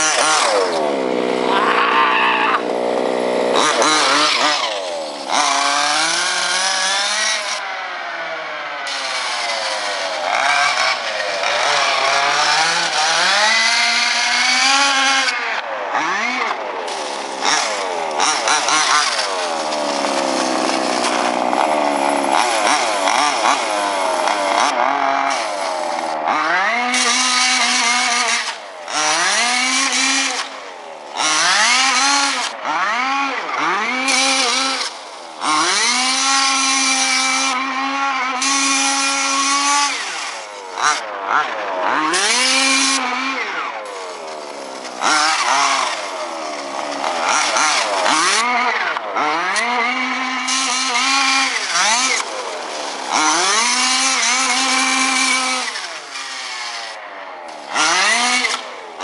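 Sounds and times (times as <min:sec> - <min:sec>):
rc buggy engine revving: 0:00.0 - 0:59.0.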